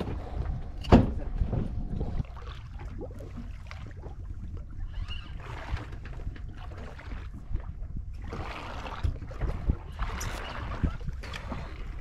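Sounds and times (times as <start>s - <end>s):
low rumble: 0.0s - 10.1s
water lapping against boat hull: 0.0s - 12.0s.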